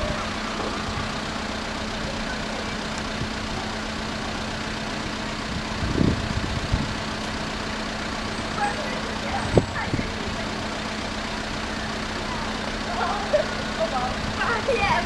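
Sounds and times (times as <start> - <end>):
vehicles idling: 0.0 - 15.0
dull low thumps: 5.4 - 7.2.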